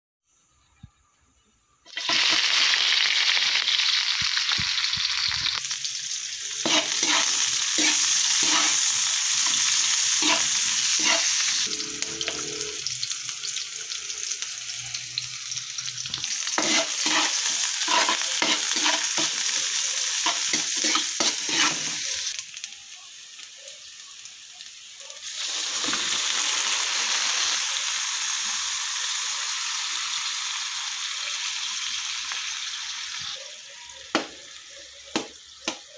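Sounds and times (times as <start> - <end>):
onions sizzling in hot oil: 1.9 - 35.9
spoon scraping against pan: 6.6 - 12.8, 16.2 - 22.3.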